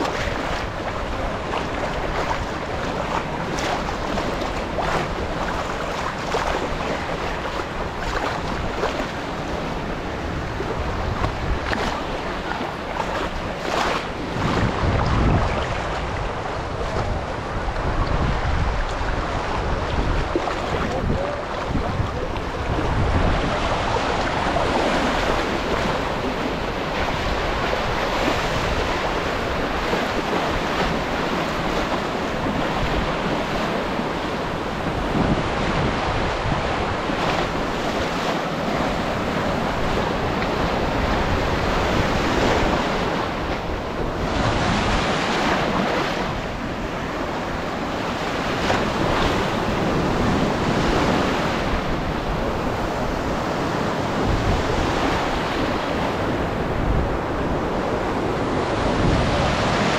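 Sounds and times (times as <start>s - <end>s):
small waves breaking in surf: 0.0s - 59.9s
wind buffeting microphone: 0.0s - 59.9s.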